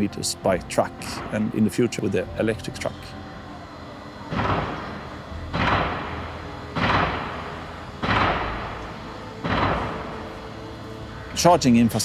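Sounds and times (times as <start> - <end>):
low steady drone: 0.0 - 12.0
percussive hits: 4.3 - 10.2.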